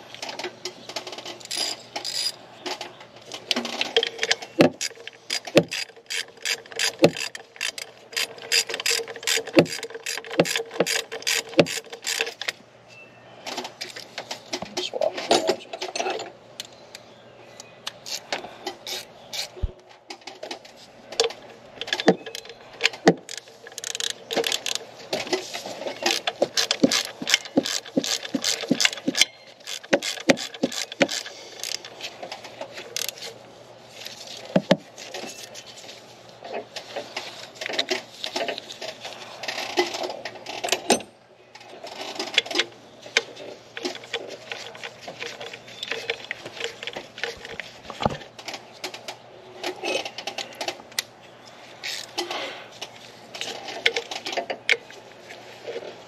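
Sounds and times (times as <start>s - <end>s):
hand ratchet clicking: 1.4s - 2.4s, 4.0s - 12.5s, 23.1s - 24.8s, 26.0s - 31.9s.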